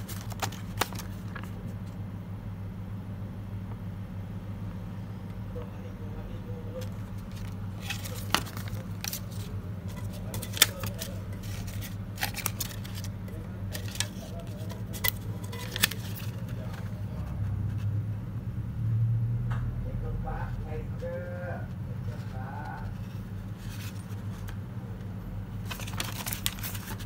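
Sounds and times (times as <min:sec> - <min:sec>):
banknotes crackling: 0:00.0 - 0:02.0, 0:06.4 - 0:17.4, 0:20.4 - 0:27.0
steady low hum: 0:00.0 - 0:27.0.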